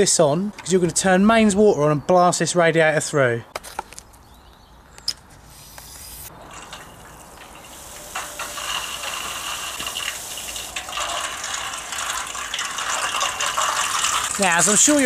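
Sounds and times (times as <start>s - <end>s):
water spray hissing: 5.4s - 15.0s.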